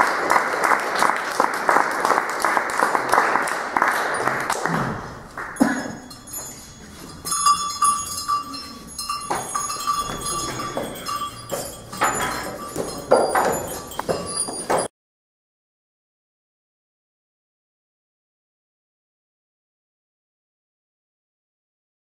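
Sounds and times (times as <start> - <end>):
applause: 0.0 - 6.0
small metal bells clanking: 5.5 - 14.9
wooden staffs knocking on floor: 9.3 - 14.9.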